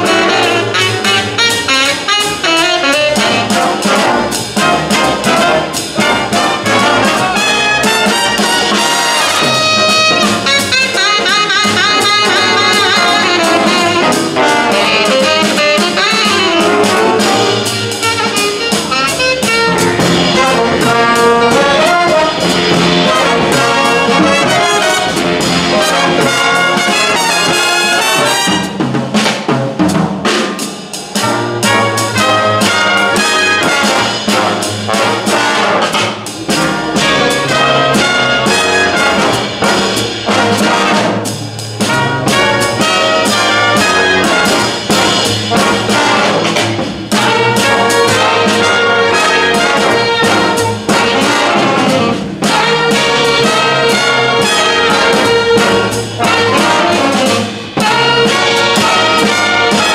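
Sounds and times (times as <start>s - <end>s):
jazz big band playing: 0.0s - 59.9s.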